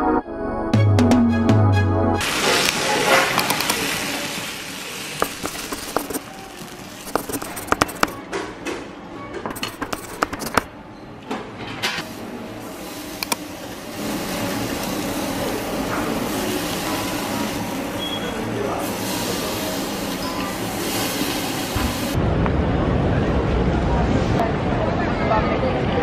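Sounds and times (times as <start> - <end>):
beef sizzling on grill: 2.2 - 7.8, 12.0 - 22.2
food sizzling in hot bowl: 2.2 - 8.0, 12.0 - 22.2
metal spoon stirring: 5.2 - 8.2, 9.5 - 10.7.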